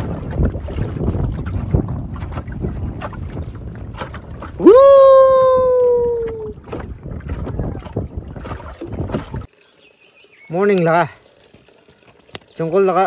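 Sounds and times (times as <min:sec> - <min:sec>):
wind buffeting microphone: 0:00.0 - 0:09.5
water rushing past boat: 0:00.0 - 0:13.0.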